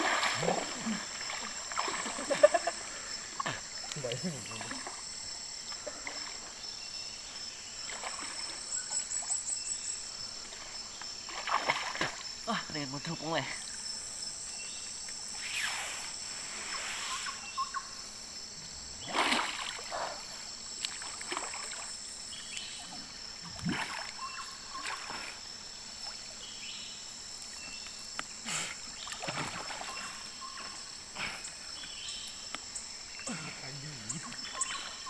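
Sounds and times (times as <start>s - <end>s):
river water splashing: 0.0s - 9.7s, 10.4s - 13.8s, 18.3s - 35.0s
insects droning: 0.0s - 35.0s.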